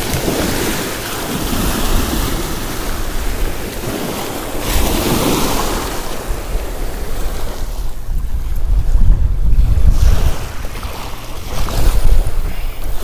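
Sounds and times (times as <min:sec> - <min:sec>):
waves washing over pebbles: 0:00.0 - 0:08.1
wind rumbling on microphone: 0:00.0 - 0:13.0.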